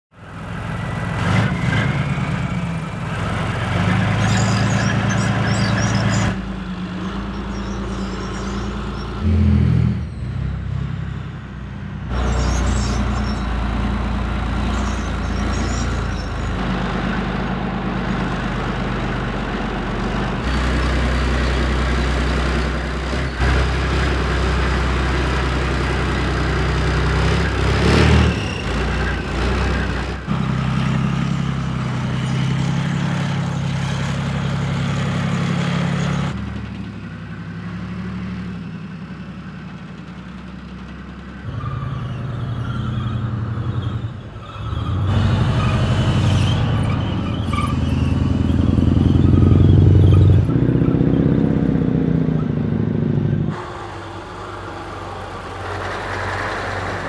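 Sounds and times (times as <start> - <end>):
diesel engine deep drone: 0.1 - 57.0
metallic track clatter and squeak: 3.8 - 6.4, 7.0 - 9.2, 12.1 - 13.6, 14.5 - 16.6, 27.2 - 30.2, 40.0 - 51.2.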